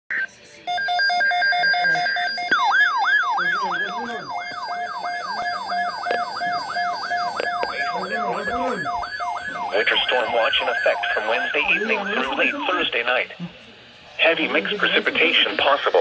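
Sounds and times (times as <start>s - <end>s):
siren-like whooping alert: 0.7s - 12.6s
screeching data tones: 0.7s - 13.0s.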